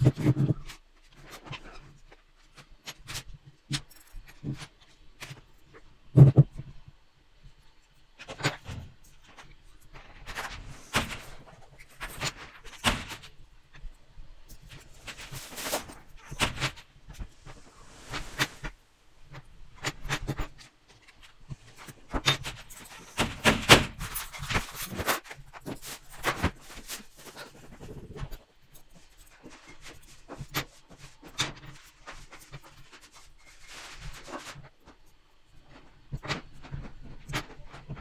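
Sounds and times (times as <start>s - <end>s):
metal parts clinking and rattling: 19.8s - 29.3s.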